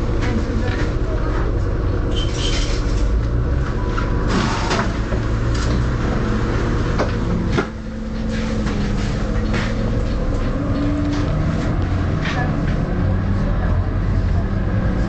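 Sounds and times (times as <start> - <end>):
bus diesel engine idling: 0.0 - 15.0
bus doors clattering: 4.0 - 13.0.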